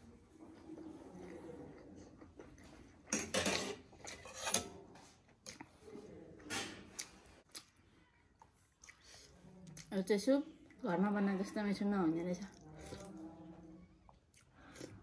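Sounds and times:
cutlery clinking on metal dishes: 3.1 - 4.8.

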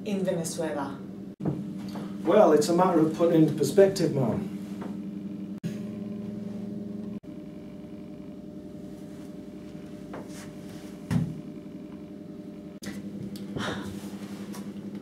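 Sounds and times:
low hum: 0.0 - 15.0
dull thump: 1.4 - 2.1, 11.0 - 11.4.

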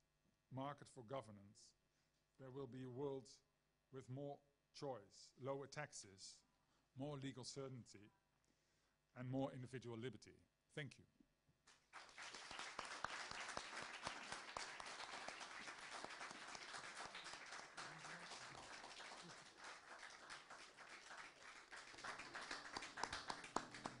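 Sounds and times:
audience applauding: 11.7 - 24.0.

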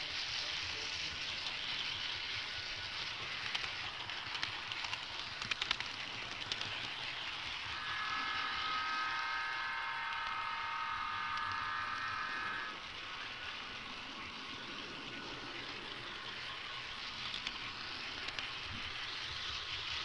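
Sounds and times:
model train rushing noise: 0.0 - 20.0
chord of high tones: 7.7 - 12.7.

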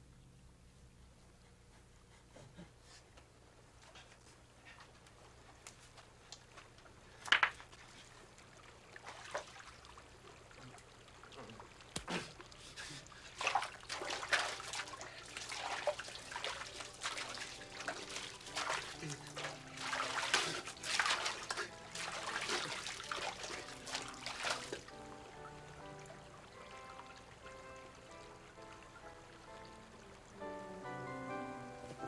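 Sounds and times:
water splashing and trickling: 5.4 - 30.7.

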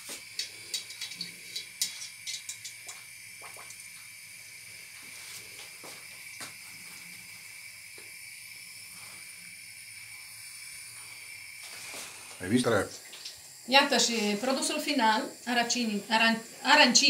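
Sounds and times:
oil crackling: 0.0 - 4.0
food deep-frying in oil: 0.0 - 17.0.

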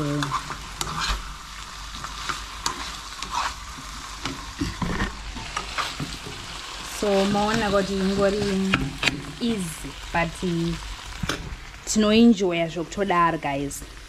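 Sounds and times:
meat sizzling in a frying pan: 0.0 - 14.0
utensil scraping a pan: 0.1 - 1.3, 1.9 - 9.3.

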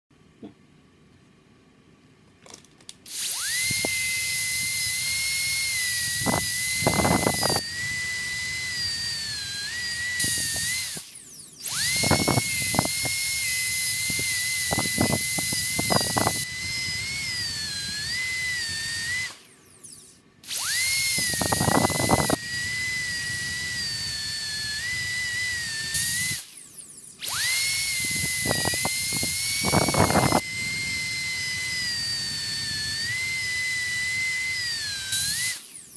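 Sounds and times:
dental drill whining: 3.1 - 35.9.

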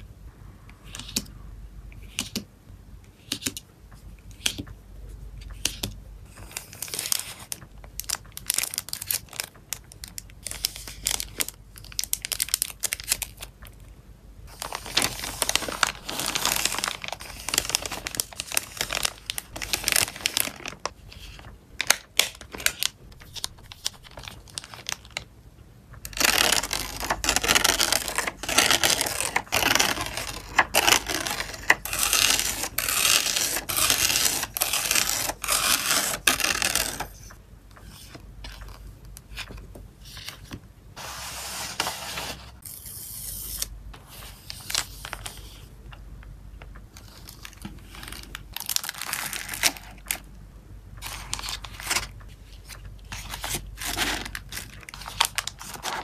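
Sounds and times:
plastic crinkling: 6.4 - 13.8, 14.5 - 25.3, 26.0 - 37.4, 46.6 - 50.3, 51.0 - 56.0.

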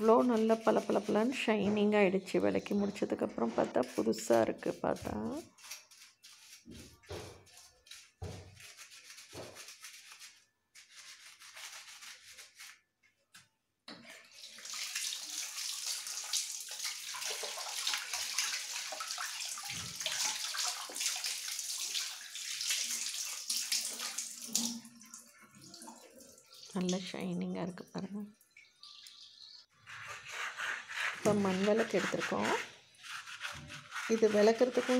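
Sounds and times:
tap water splashing: 13.9 - 27.0
scrubber rubbing metal lamp: 29.9 - 34.9.

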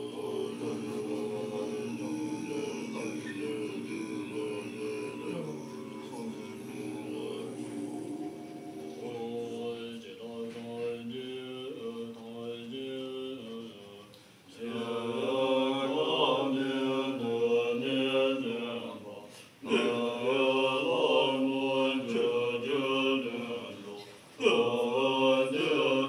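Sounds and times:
monks chanting in unison: 0.0 - 26.0.

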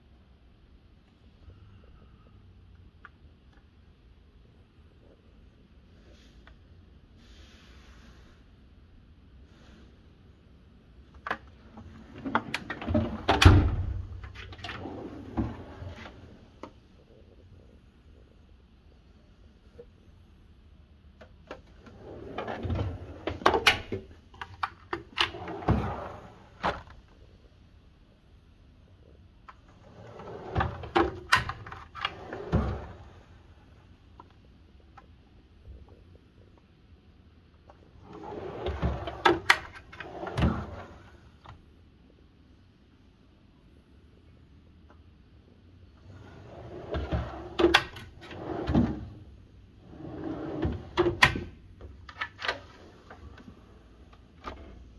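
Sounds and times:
steel drawers clicking and knocking: 11.3 - 16.2, 46.6 - 49.2, 49.9 - 53.5
drawer rumbling on slides: 11.6 - 16.6, 21.5 - 24.0, 25.0 - 26.9, 29.7 - 33.6, 38.0 - 41.4, 46.0 - 51.5, 52.3 - 54.9.

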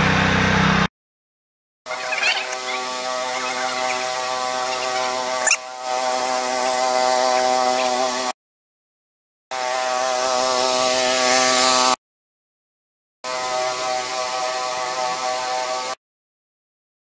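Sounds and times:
petrol engine and pump hum: 0.0 - 0.9, 1.9 - 8.3.

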